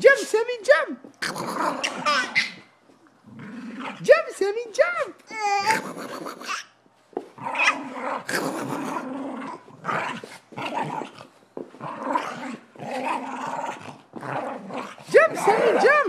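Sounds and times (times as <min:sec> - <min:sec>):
dogs growling: 0:01.2 - 0:04.1, 0:05.6 - 0:06.6, 0:07.4 - 0:15.9.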